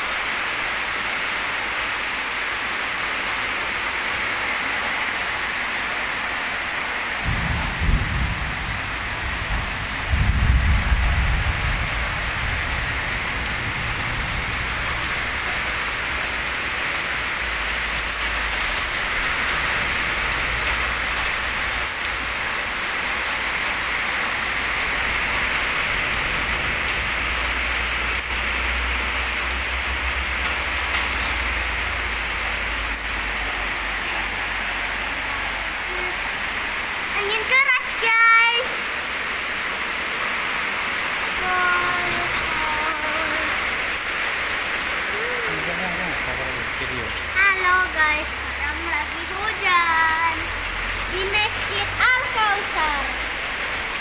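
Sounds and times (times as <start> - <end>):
heavy rain pouring: 0.0 - 54.0
thunder rumbling: 7.1 - 37.2, 40.4 - 48.0.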